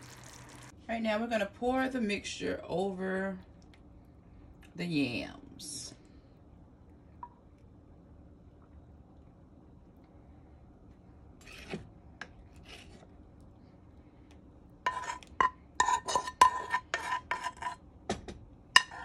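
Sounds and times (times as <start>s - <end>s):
metal spoon scraping a pan: 14.8s - 17.8s, 18.8s - 19.0s.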